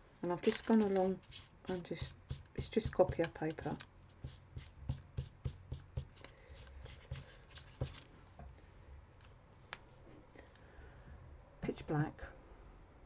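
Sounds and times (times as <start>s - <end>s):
marker pen scribbling on paper: 1.2s - 8.0s.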